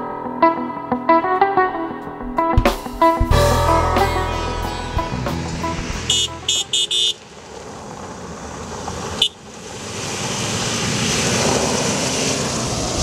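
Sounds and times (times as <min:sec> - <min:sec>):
rally car engine approaching: 0:03.6 - 0:13.0
tyres rushing on gravel: 0:05.6 - 0:13.0
high-pitched warning blasts: 0:05.7 - 0:07.2.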